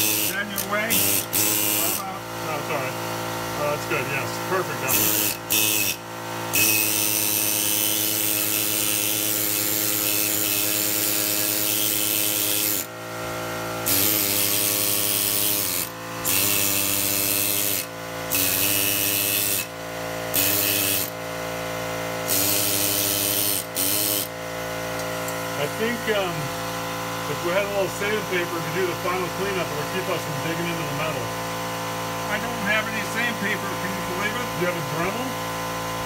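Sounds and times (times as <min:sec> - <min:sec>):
electric power tool running: 0:00.0 - 0:36.0.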